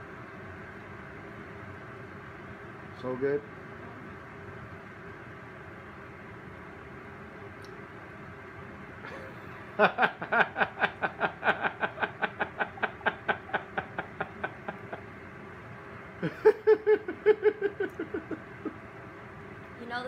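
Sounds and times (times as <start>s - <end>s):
person laughing: 9.1s - 15.1s, 16.2s - 18.8s.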